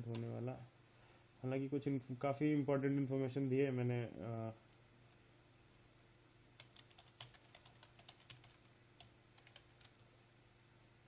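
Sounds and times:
faint steady hum: 0.0 - 11.0
typing on computer keyboard: 6.6 - 10.0.

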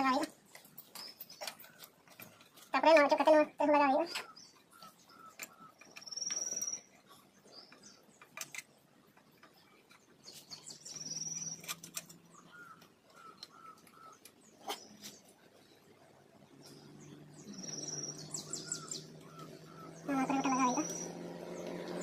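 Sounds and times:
high pulsed bird trills: 4.0 - 8.0, 10.2 - 15.8, 16.6 - 21.3.

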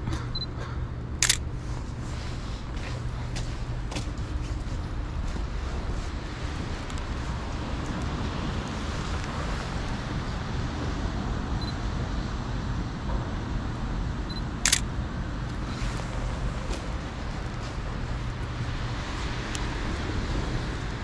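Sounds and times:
low rumble of street traffic: 0.0 - 21.0
camera shutter click: 1.2 - 1.4, 14.7 - 14.9.

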